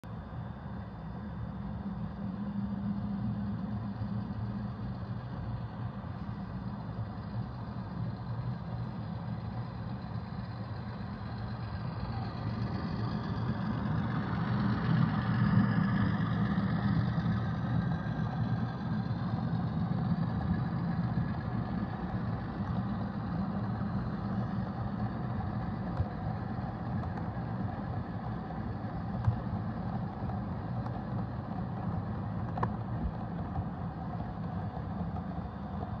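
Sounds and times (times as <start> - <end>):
model train humming on track: 0.0 - 36.0
click: 29.2 - 29.4, 32.4 - 32.8.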